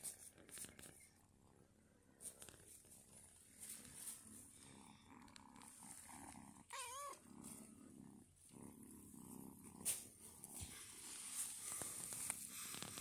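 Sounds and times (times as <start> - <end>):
kitten purring: 0.0 - 13.0
kitten meowing: 6.7 - 7.2.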